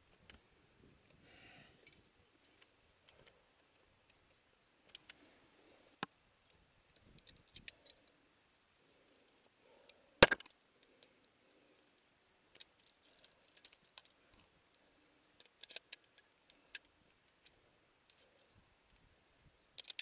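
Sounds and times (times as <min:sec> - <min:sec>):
climbing hardware clinking: 0:01.8 - 0:03.4.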